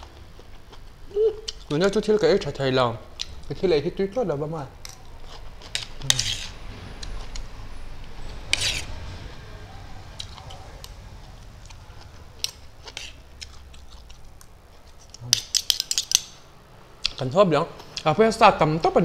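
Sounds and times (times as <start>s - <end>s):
metal spoons clinking on a plate: 15.2s - 16.4s.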